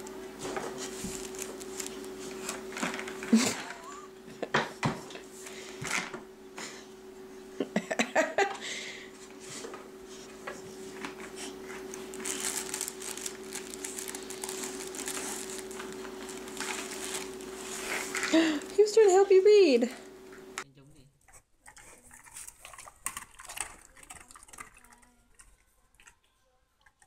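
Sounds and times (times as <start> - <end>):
faint steady hum: 0.0 - 27.0
dog rustling a fabric book: 0.3 - 3.3, 10.7 - 18.3.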